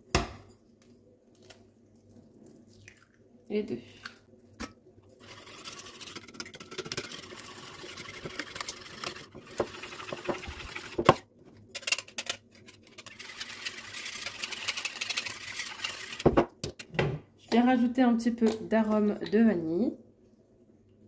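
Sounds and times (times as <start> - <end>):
whisk scraping and tapping bowl: 5.2 - 11.2, 12.6 - 16.9.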